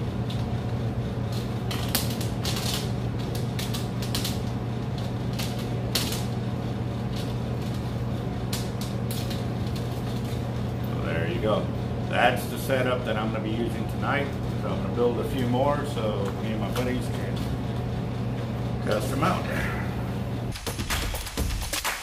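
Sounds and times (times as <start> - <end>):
steady low hum: 0.0 - 21.7
steel wire clicking while twisted: 1.3 - 6.4.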